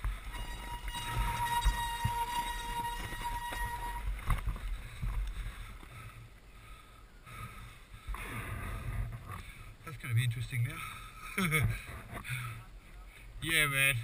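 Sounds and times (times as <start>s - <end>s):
bike knocking over rough ground: 0.0s - 5.3s
dirt bike engine: 0.0s - 9.6s.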